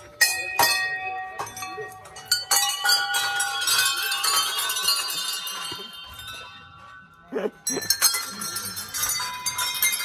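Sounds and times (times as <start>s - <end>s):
small brass bells clanging: 0.0s - 10.0s.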